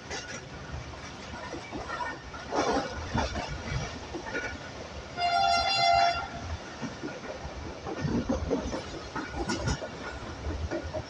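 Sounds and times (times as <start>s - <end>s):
railway carriage running noise: 0.0s - 11.0s
train wheel clicks: 0.0s - 11.0s
train horn: 5.2s - 6.5s.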